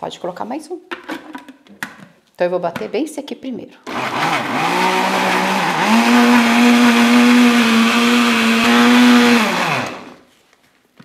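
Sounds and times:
blender motor running: 3.9s - 10.3s.

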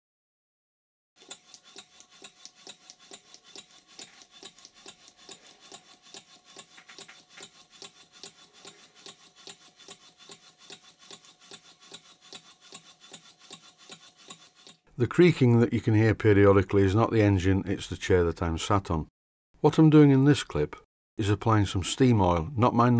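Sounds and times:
model steam engine exhaust puffing: 1.2s - 14.8s.

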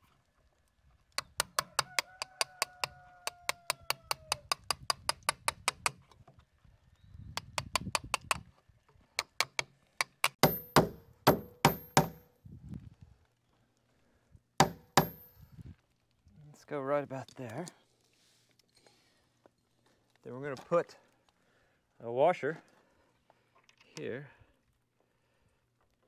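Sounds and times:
hammer tapping a chisel: 1.2s - 6.0s, 7.4s - 8.4s, 9.2s - 12.3s, 14.6s - 15.3s
hard metallic-ringing hammer strikes: 10.3s - 12.3s, 14.6s - 15.4s.

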